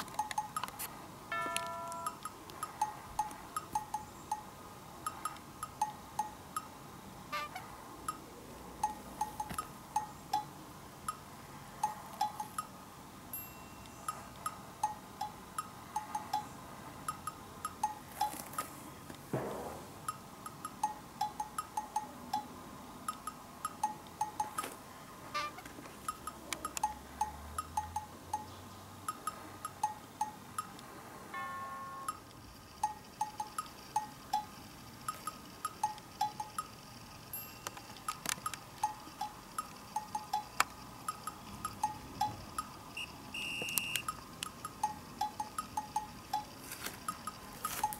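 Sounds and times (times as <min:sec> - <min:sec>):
bell-like plinking background music: 0:01.3 - 0:04.5, 0:13.3 - 0:14.3, 0:37.3 - 0:38.0.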